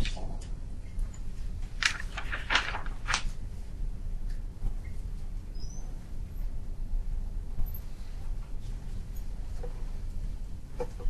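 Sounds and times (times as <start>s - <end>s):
steady low hum: 0.0s - 11.0s
faint high chirp: 5.5s - 5.9s.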